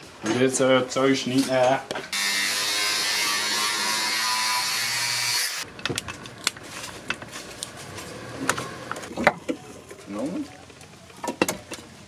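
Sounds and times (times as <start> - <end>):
angle grinder grinding wood: 2.2 - 5.7.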